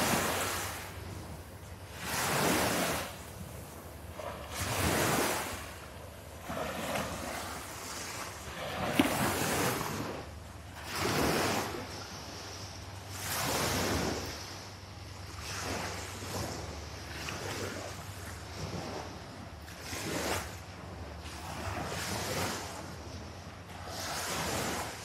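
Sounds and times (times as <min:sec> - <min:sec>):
waves washing onto sand: 0:00.0 - 0:25.0
wind rumbling on microphone: 0:00.0 - 0:25.0.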